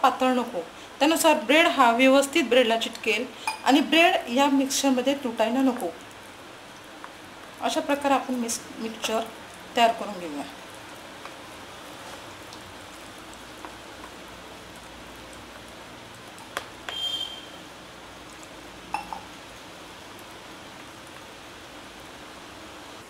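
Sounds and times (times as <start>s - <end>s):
steady low hiss: 0.0s - 23.0s
vessel clinking against glass: 18.9s - 19.2s.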